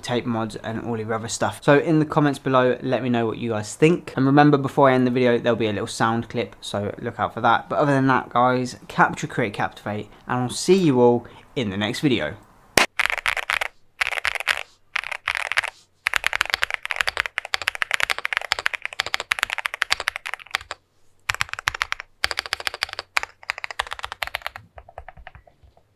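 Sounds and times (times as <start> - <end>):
mechanical keyboard typing: 12.9 - 25.8.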